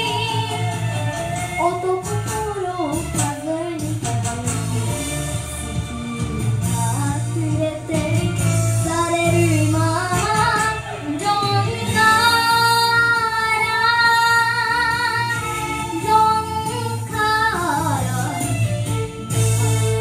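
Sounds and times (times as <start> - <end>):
girl singing into microphone: 0.0 - 18.7.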